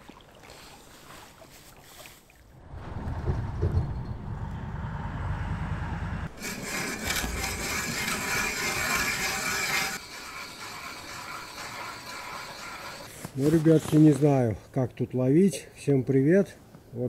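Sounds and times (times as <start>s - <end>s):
low rumble: 2.6s - 9.4s
ice auger scraping ice: 6.3s - 14.2s.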